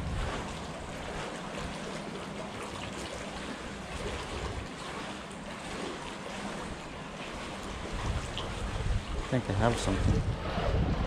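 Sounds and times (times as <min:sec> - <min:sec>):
water splashing against seawall: 0:00.0 - 0:11.0.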